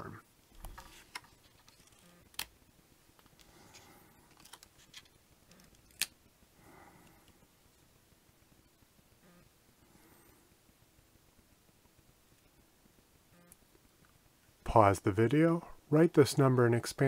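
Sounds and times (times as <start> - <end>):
paper cards rustling: 0.5 - 2.5, 3.2 - 6.1.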